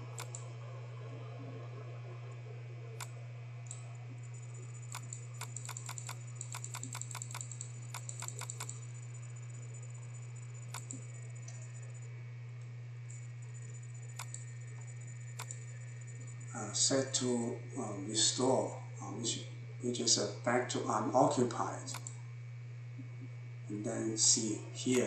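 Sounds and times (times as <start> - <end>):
computer mouse and keyboard clicks: 0.0 - 0.4, 4.8 - 8.8, 10.6 - 11.6, 14.1 - 15.6, 21.9 - 22.1
low electrical hum: 0.0 - 25.0.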